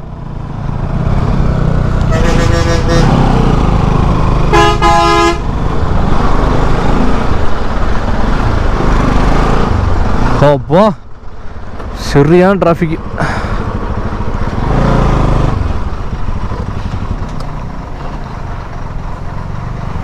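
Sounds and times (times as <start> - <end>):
motorcycle engine rumble: 0.0 - 20.0
road noise: 0.0 - 20.0
vehicle horn blasts: 2.0 - 3.2, 4.5 - 5.5.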